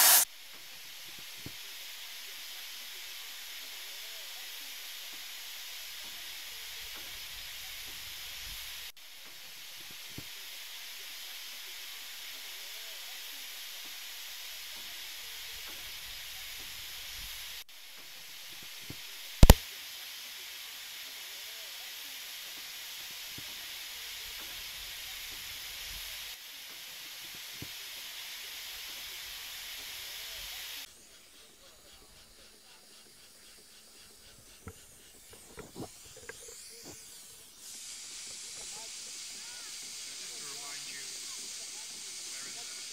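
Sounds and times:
steam engine hissing: 0:00.0 - 0:42.9
loud sharp click: 0:19.4 - 0:19.6.

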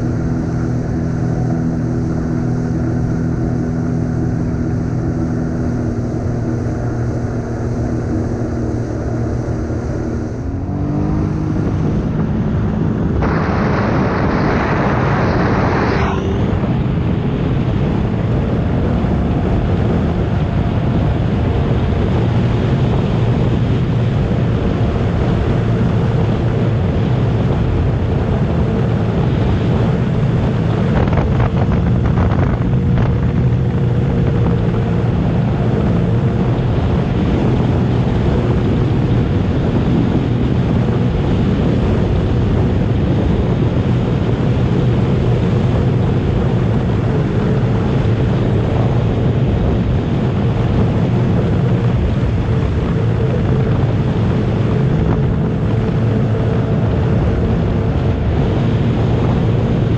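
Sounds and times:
water rushing: 0:00.0 - 0:18.4
watercraft engine running: 0:00.0 - 0:59.9
wind buffeting microphone: 0:00.0 - 0:59.9
burst of hissing noise: 0:13.2 - 0:16.4.

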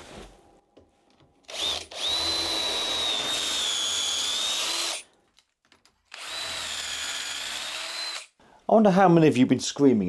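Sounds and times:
cordless drill whining: 0:01.5 - 0:05.1, 0:06.1 - 0:08.3.

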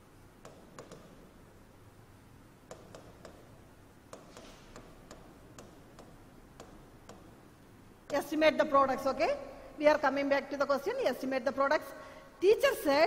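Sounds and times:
stylus tapping on touchscreen: 0:00.4 - 0:01.3, 0:02.6 - 0:03.5, 0:04.1 - 0:07.4.

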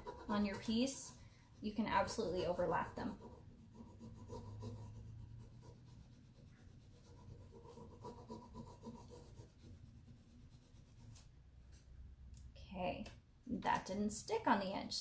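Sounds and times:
scratchy rubbing on wood: 0:00.0 - 0:11.3.

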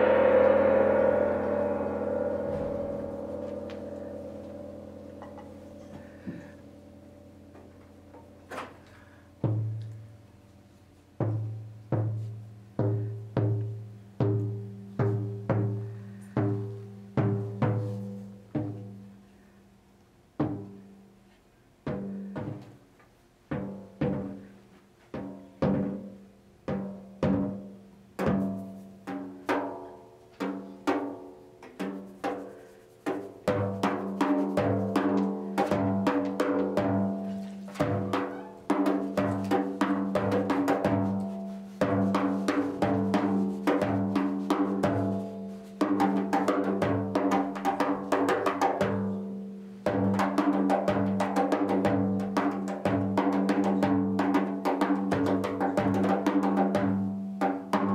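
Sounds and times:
frame drum hits: 0:00.0 - 0:10.0, 0:11.2 - 0:19.1, 0:33.3 - 0:49.2.

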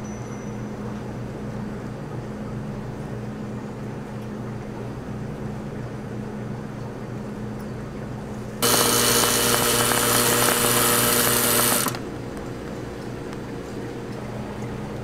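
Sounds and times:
low machine hum: 0:00.0 - 0:15.0
cream dispensing machine whirring: 0:08.6 - 0:12.1.

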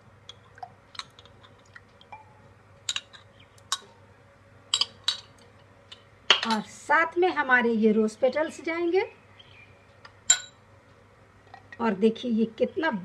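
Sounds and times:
metal spoon clinking on glass bowl: 0:04.8 - 0:05.3, 0:10.3 - 0:10.6.

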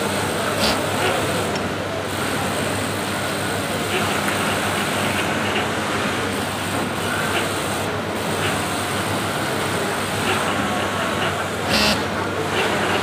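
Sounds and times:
sewing machine motors humming: 0:00.0 - 0:13.0.

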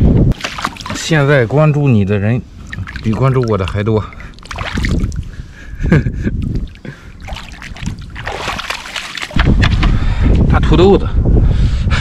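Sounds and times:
seawater splashing and sloshing: 0:00.3 - 0:01.6, 0:02.6 - 0:05.6, 0:06.3 - 0:09.7.

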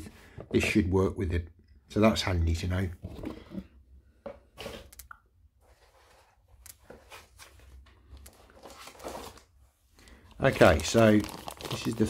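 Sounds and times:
packaging clicks and rustles: 0:08.2 - 0:12.0.

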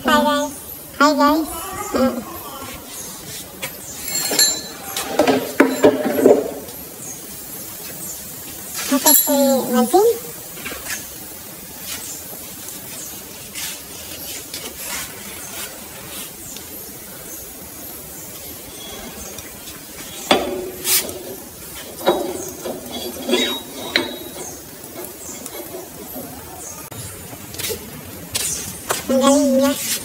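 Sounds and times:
metal parts clinking and knocking: 0:04.0 - 0:06.7, 0:22.0 - 0:25.8.

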